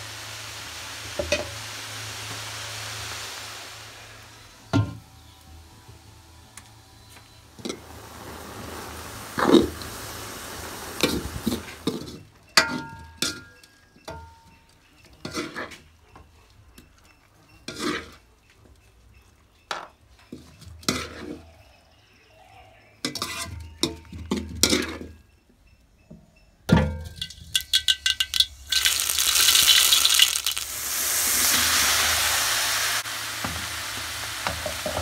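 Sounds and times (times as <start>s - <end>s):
wooden spatula scraping wok: 17.7s - 18.2s, 20.4s - 21.4s
knocks and clinks on metal pan: 26.7s - 28.6s.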